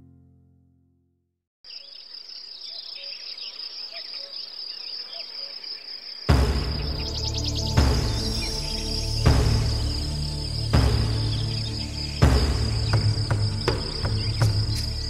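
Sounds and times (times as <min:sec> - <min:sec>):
acoustic guitar chord: 0:00.0 - 0:01.2
faint bird chirps: 0:01.6 - 0:15.0
crickets chirring: 0:01.7 - 0:15.0
loud music: 0:06.3 - 0:15.0.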